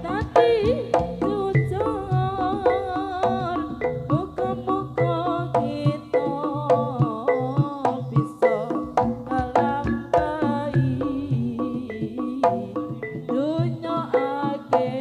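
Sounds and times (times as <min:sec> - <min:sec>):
wavering lead melody: 0:00.0 - 0:06.6, 0:08.5 - 0:13.9
hand drum strokes: 0:00.0 - 0:15.0.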